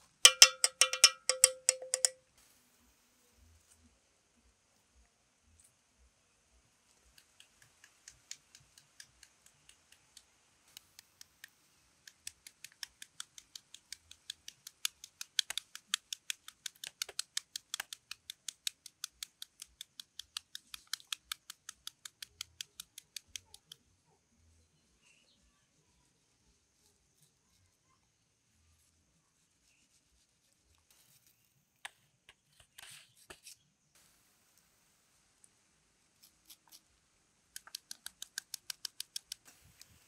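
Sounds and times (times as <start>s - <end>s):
knife tapping through onion: 0.3s - 2.2s.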